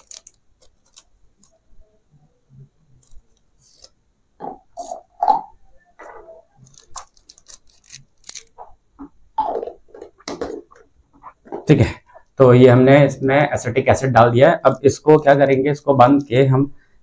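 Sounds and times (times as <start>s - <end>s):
plastic bag crinkling: 0.0s - 1.6s, 6.6s - 8.6s.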